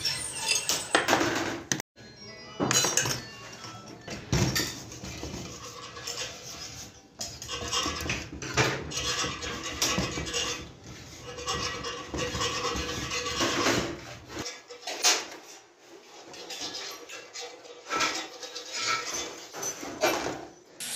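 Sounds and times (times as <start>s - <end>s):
metal parts clinking and scraping: 0.0s - 1.4s.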